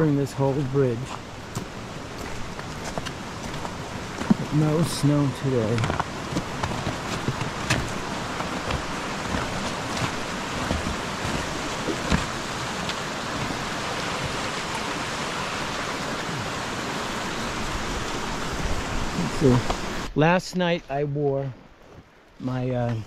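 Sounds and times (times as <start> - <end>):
rushing water and rain: 0.0 - 23.0.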